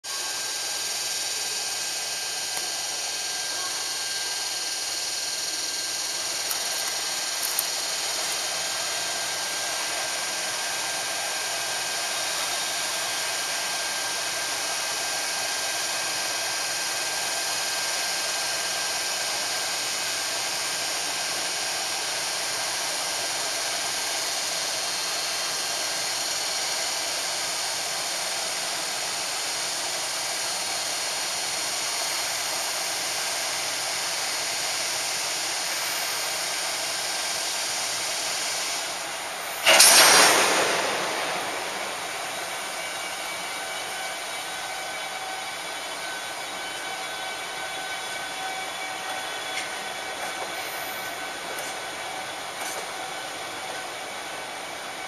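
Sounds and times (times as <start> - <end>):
cooling blowers whirring: 35.6 - 53.0
faint high whine: 35.7 - 52.2.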